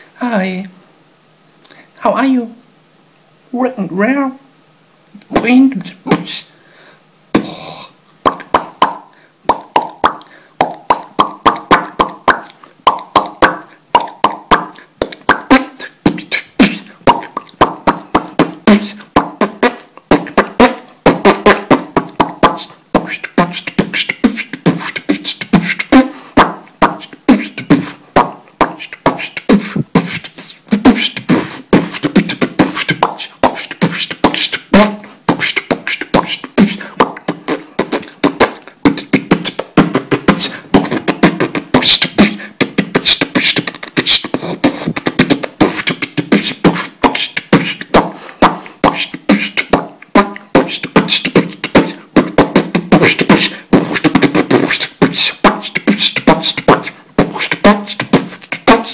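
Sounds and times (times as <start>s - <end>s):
man beatboxing: 5.2s - 6.5s, 7.3s - 58.9s.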